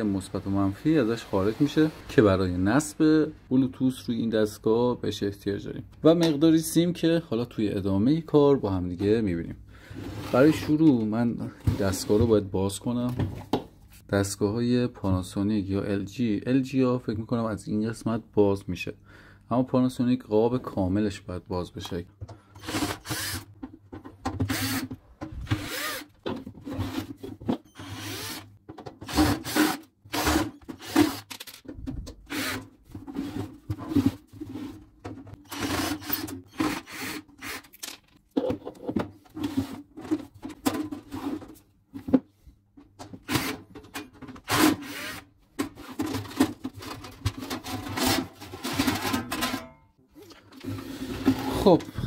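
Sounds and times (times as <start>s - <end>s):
cordless drill running in bursts: 22.6s - 23.4s, 24.5s - 24.8s, 25.6s - 26.0s, 27.8s - 28.4s.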